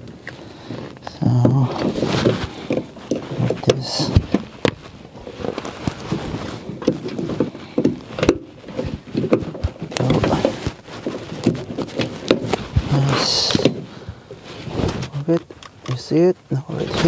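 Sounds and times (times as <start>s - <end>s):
cloth rustling: 0.0s - 17.0s
plastic clicks and knocks: 6.8s - 12.8s.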